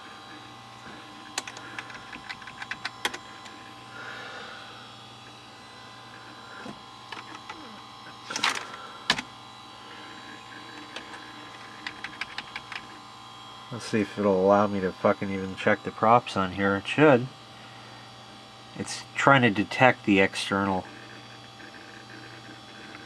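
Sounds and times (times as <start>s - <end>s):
desktop computer hum: 0.0s - 23.0s
keyboard keys clicking: 1.4s - 3.2s, 11.0s - 12.8s.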